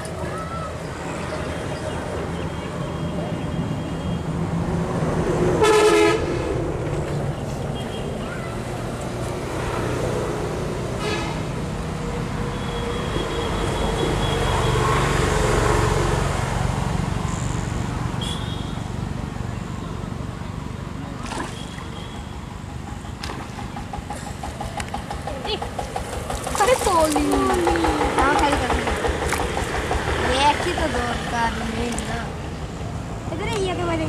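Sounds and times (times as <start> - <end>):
outdoor background noise: 0.0 - 34.0
horn toot: 5.6 - 6.3.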